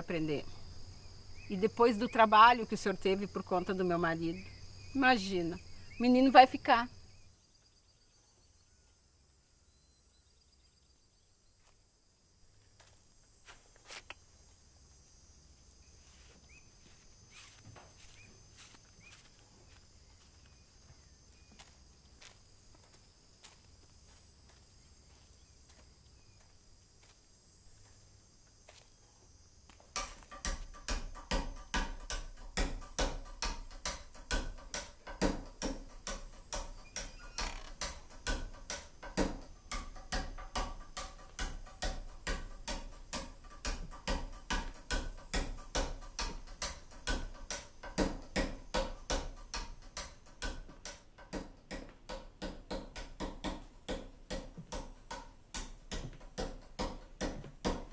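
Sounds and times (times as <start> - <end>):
faint crickets chirping: 0.0 - 57.9
fast sharp ticks and knocks: 29.8 - 57.9.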